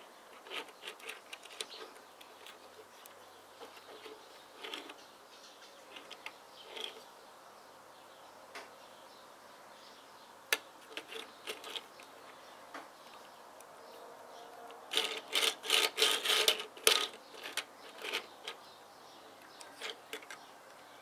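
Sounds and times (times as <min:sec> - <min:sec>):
plastic rubbing on wooden table: 0:00.4 - 0:02.8, 0:03.6 - 0:05.0, 0:05.9 - 0:07.0, 0:14.9 - 0:18.3
plastic toy clicking: 0:14.8 - 0:18.6, 0:19.6 - 0:20.4.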